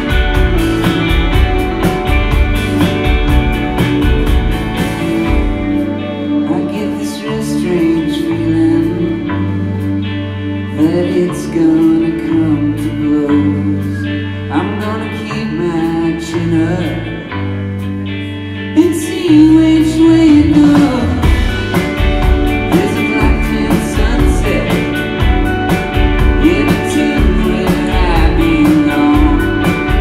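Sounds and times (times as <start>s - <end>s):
live rock band playing: 0.0s - 30.0s
person singing: 5.5s - 17.5s, 18.7s - 30.0s.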